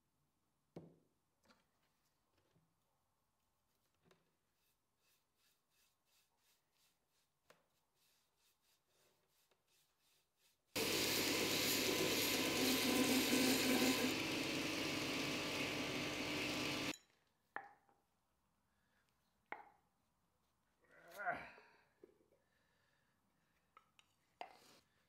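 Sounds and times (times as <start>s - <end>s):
belt grinder grinding steel: 10.8s - 16.9s.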